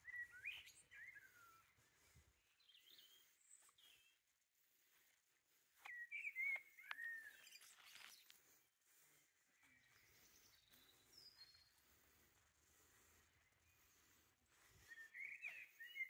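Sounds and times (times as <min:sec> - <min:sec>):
songbird whistling: 0:00.0 - 0:01.8, 0:05.8 - 0:08.1, 0:14.8 - 0:16.0
faint bird chirps: 0:00.0 - 0:16.0.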